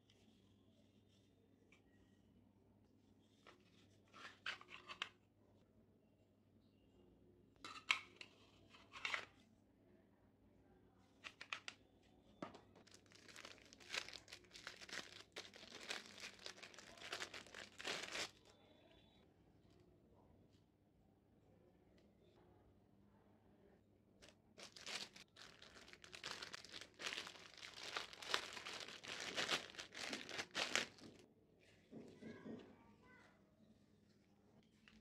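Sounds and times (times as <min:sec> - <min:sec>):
plastic parts clicking and rattling: 0:12.8 - 0:18.3, 0:24.6 - 0:31.2
plastic wrapper crinkling: 0:12.8 - 0:18.5, 0:24.6 - 0:31.2.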